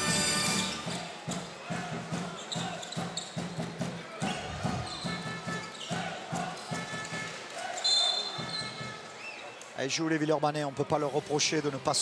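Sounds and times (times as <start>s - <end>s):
arena music: 0.0s - 1.3s, 4.2s - 7.7s
shoe squeaks: 2.3s - 3.6s, 4.3s - 6.2s, 7.8s - 9.6s.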